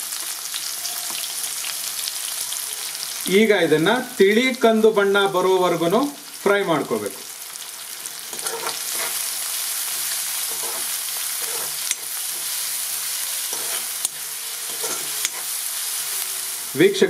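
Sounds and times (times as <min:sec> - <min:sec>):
onions sizzling in hot oil: 0:00.0 - 0:17.0
spoon scraping metal pan: 0:08.2 - 0:16.6.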